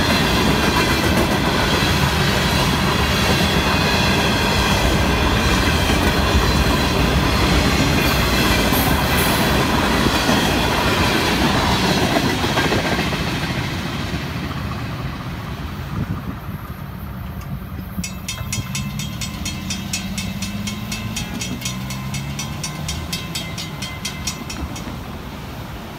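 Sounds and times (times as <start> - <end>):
train wheels clacking on rails: 0.0 - 25.9
railroad crossing bell ringing: 17.9 - 25.7.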